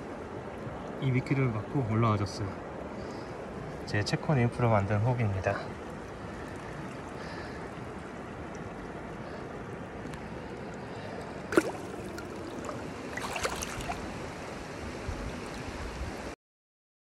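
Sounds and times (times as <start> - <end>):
stream running over stones: 0.0 - 16.2
fish splashing in water: 5.9 - 9.4, 10.3 - 14.5.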